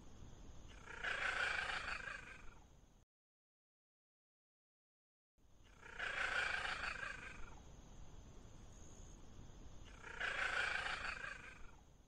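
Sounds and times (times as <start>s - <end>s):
wild cat calling: 0.7s - 2.6s, 5.7s - 7.6s, 9.9s - 11.8s.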